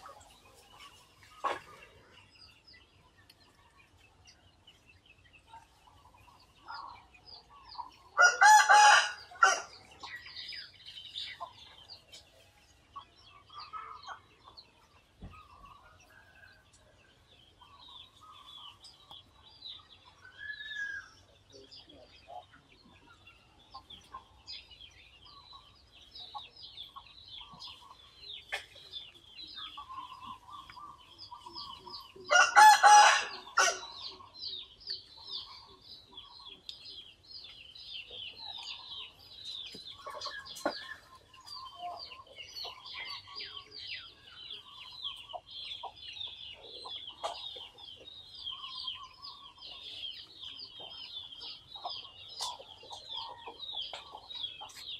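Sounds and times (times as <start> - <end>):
small birds chirping: 0.0 - 54.9
rooster crowing: 8.2 - 9.7, 32.3 - 33.8.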